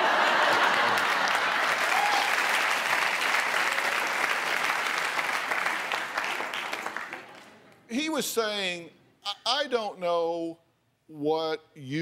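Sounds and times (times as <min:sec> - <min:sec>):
studio audience applauding: 0:00.0 - 0:07.5.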